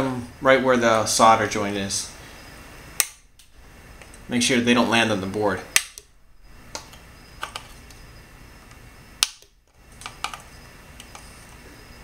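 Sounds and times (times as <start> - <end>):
cutters snipping wire leads: 3.0 - 3.5, 5.7 - 6.1.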